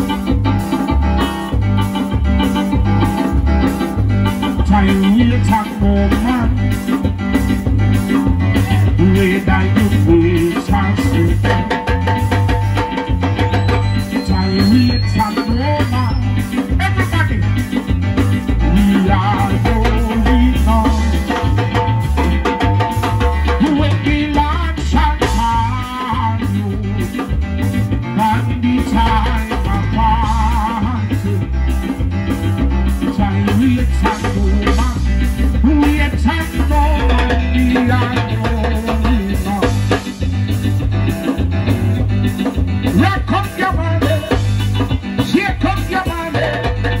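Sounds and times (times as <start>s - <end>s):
drum kit: 0.0s - 47.0s
electronic keyboard: 0.0s - 47.0s
heavy pulsing bass: 0.0s - 47.0s
man singing into a microphone: 4.3s - 7.0s, 8.1s - 12.0s, 13.8s - 17.7s, 18.5s - 22.6s, 23.5s - 31.5s, 32.9s - 40.2s, 42.8s - 47.0s.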